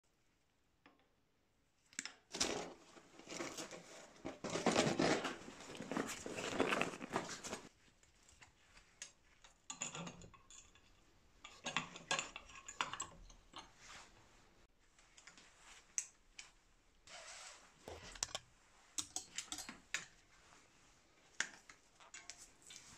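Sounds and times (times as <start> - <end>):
metal tools clinking and rattling: 9.7 - 13.8.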